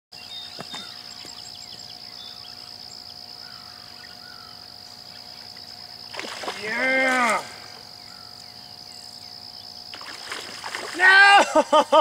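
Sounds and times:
bird chirps: 0.2 - 5.0, 7.9 - 9.9
insects trilling: 0.2 - 12.0.

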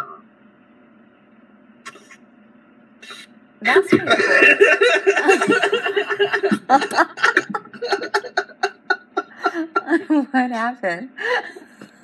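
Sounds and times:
person laughing hard: 4.0 - 10.2.

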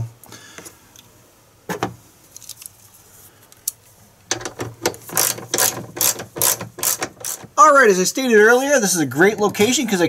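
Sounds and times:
ratchet clicking: 4.3 - 7.5.

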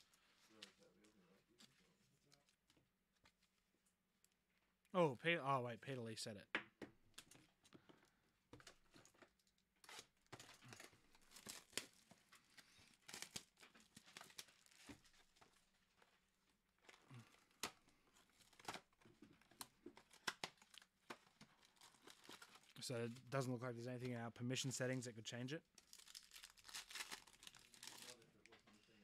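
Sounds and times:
cellophane tearing and crinkling: 9.8 - 15.8, 16.8 - 23.2, 25.8 - 28.2.

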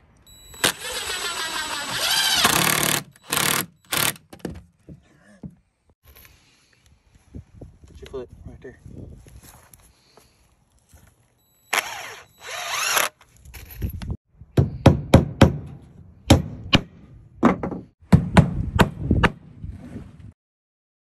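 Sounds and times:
cordless drill driving screws: 0.4 - 4.3, 11.7 - 13.2
hammer striking wood: 14.6 - 19.4.

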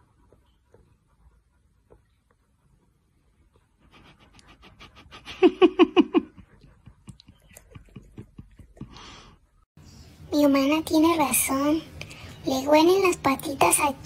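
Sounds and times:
dog panting fast: 0.0 - 7.4.

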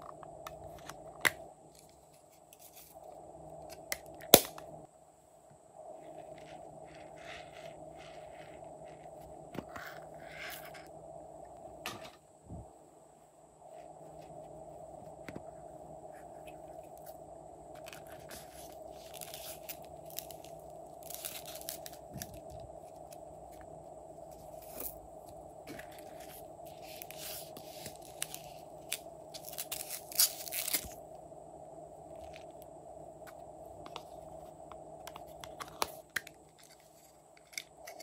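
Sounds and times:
steady low hum: 0.0 - 38.0
plastic packaging crinkling: 17.8 - 23.2, 25.9 - 31.0.

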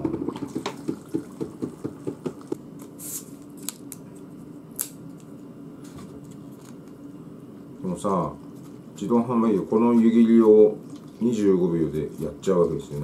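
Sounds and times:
hot water pouring into container: 0.0 - 2.5
wooden chopsticks snapping apart: 4.8 - 5.3.

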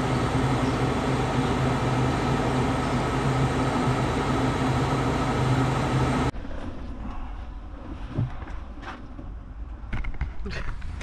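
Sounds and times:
low engine hum: 0.0 - 6.5.

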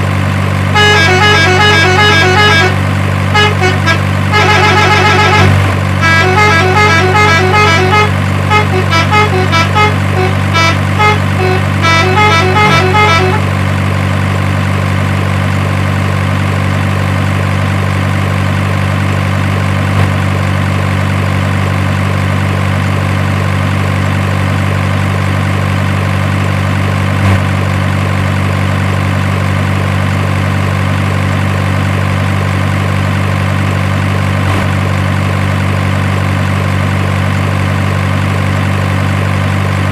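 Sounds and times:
truck engine drone: 0.0 - 39.9
tooting melody: 0.8 - 13.5.

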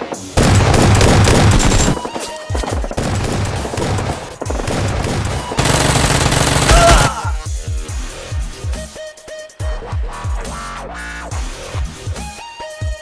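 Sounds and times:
rapid machine-gun fire: 0.4 - 2.1, 2.7 - 7.2.

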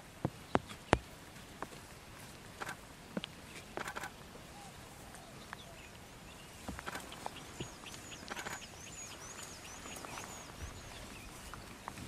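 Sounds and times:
faint background hiss: 0.0 - 12.0.

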